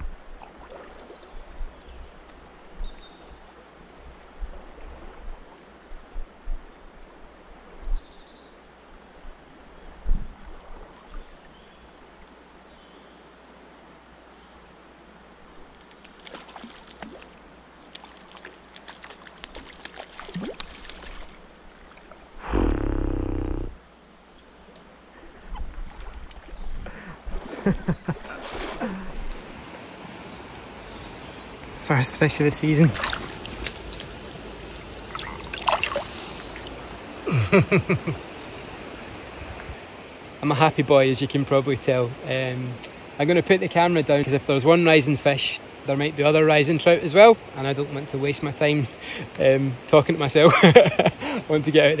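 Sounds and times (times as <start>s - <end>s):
river water running over stones: 0.0s - 7.3s, 13.3s - 22.4s, 23.6s - 52.0s
fish splashing in water: 16.0s - 21.4s, 32.9s - 36.8s
sudden loud noise: 22.4s - 23.8s
river rushing: 27.4s - 41.2s
fish splashing at surface: 32.9s - 34.1s, 35.1s - 36.7s.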